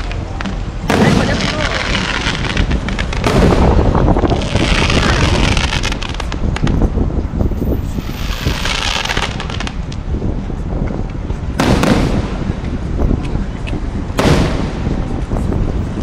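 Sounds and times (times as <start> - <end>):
fireworks crackling and popping: 0.0 - 7.0, 7.7 - 10.2, 11.1 - 16.0
loud bang: 14.2 - 15.0.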